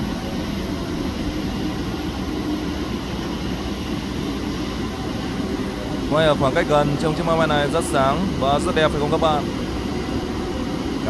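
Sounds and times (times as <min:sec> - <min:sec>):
jet engines idling: 0:00.0 - 0:11.0.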